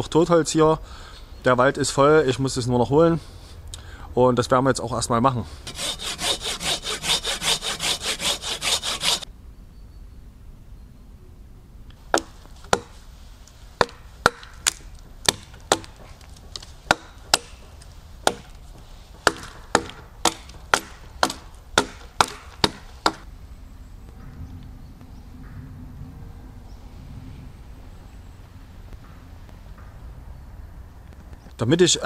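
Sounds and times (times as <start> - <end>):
hatchet chopping wood: 5.7 - 9.2, 12.1 - 13.0, 13.8 - 23.3.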